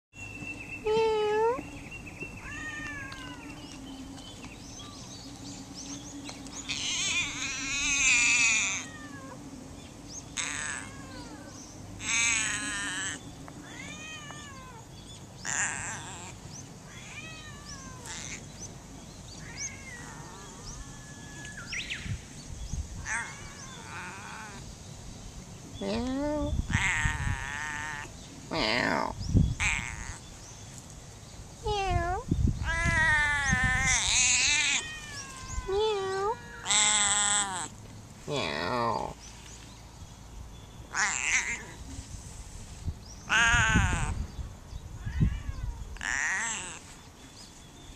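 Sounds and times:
cat meowing: 2.4s - 3.5s, 6.7s - 9.4s, 10.4s - 14.8s, 16.9s - 18.4s, 19.4s - 21.6s, 25.8s - 30.2s, 31.7s - 37.7s, 40.9s - 41.9s, 43.3s - 44.2s, 45.0s - 46.9s.

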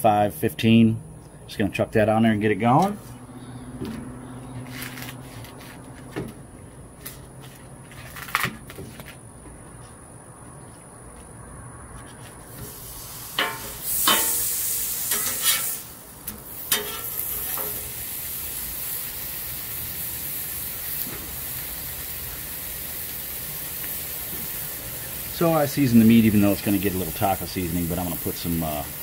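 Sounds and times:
loud hiss: 12.5s - 29.0s
meat sizzling on a griddle: 12.6s - 29.0s
spatulas clacking on griddle: 13.4s - 14.5s, 15.1s - 15.8s, 16.6s - 17.9s.

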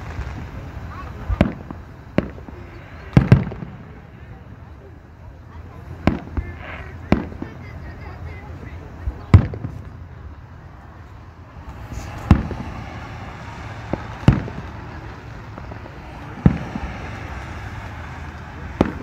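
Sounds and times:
faint firework pops: 0.0s - 4.0s, 6.0s - 7.7s, 9.1s - 10.0s, 11.1s - 19.0s
firework shells booming: 0.0s - 4.8s, 5.8s - 8.2s, 9.0s - 19.0s.

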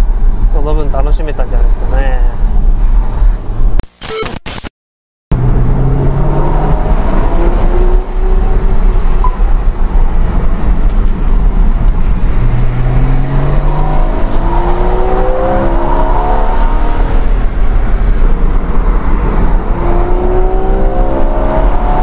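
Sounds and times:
road and tyre rumble: 0.0s - 3.8s, 5.3s - 22.0s
car engine accelerating: 5.3s - 22.0s.

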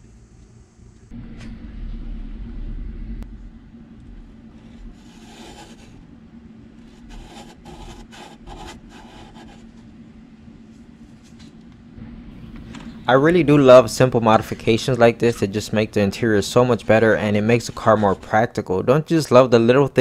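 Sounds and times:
low rumble: 0.0s - 7.0s, 9.8s - 17.7s
steady low hum: 0.0s - 20.0s
fingertip scraping plastic: 4.6s - 6.0s, 6.8s - 9.9s.

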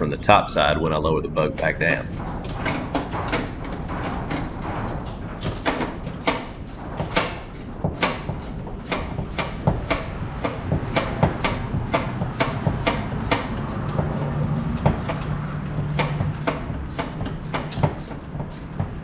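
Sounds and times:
socket ratchet clicking: 5.4s - 18.8s.

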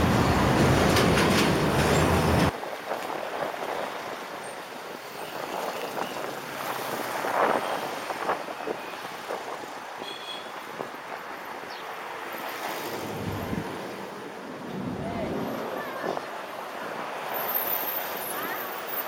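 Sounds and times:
traffic passing: 0.0s - 19.0s
wind rushing over microphone: 12.7s - 17.2s.

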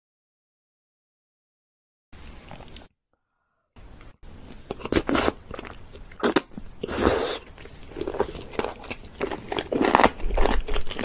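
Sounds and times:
crunchy chewing: 4.5s - 11.0s.

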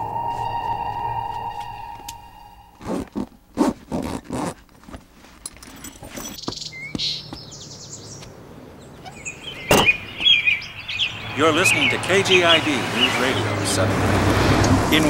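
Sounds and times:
bag rustling: 2.8s - 6.4s
car trunk lid thump: 9.7s - 10.4s.

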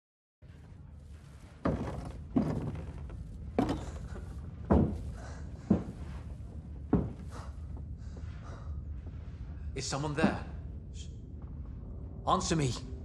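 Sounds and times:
steady low rumble: 0.4s - 13.0s
heavy boots on wooden boards: 1.6s - 8.2s.

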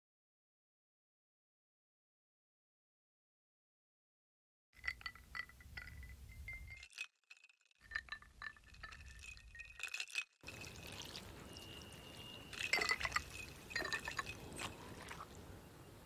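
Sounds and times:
ice cubes clinking in glass: 4.8s - 15.3s
liquid sounds: 6.7s - 15.5s.

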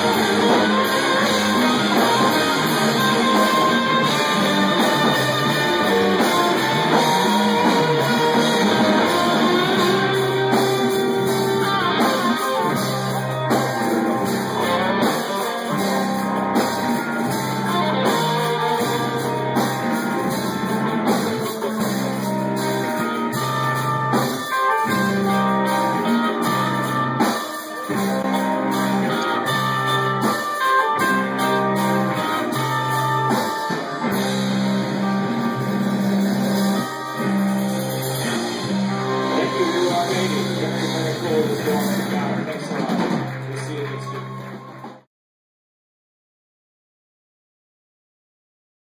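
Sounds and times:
live rock band playing: 0.0s - 45.1s.

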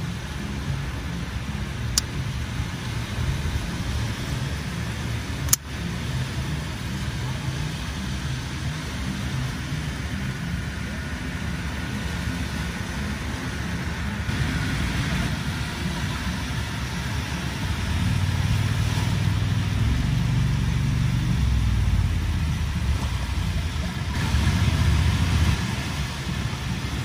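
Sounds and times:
breaking surf: 0.0s - 27.0s
sharp clicks: 5.5s - 5.7s.

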